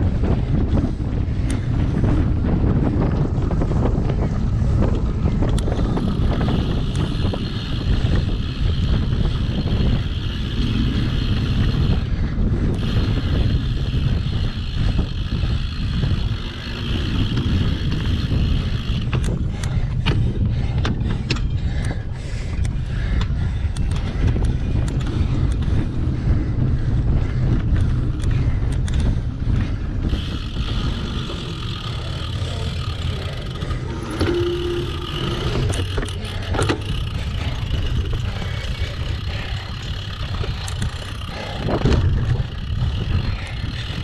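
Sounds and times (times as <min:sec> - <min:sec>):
bike rumbling over rough ground: 0:00.0 - 0:44.0
wind buffeting microphone: 0:00.0 - 0:44.0
steady higher buzz: 0:30.1 - 0:44.0.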